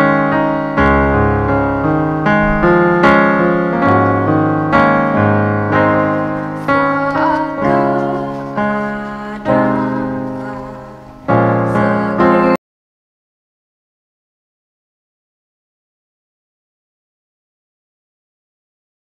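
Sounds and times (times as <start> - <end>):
electronic keyboard piano chords: 0.0 - 12.6
person singing faintly: 6.7 - 12.6.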